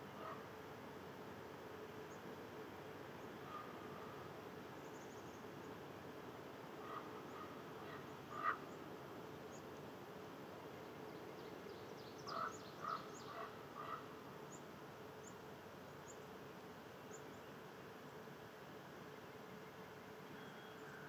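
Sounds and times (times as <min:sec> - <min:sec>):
croaking animal calls: 0:06.8 - 0:08.6, 0:12.3 - 0:14.1
faint high bird chirps: 0:19.7 - 0:21.0.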